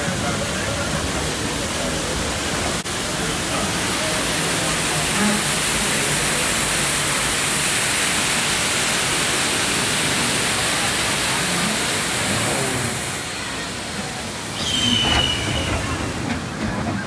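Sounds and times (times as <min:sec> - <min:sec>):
waterfall rushing: 0:00.0 - 0:16.6
ride train running on track: 0:00.0 - 0:17.0.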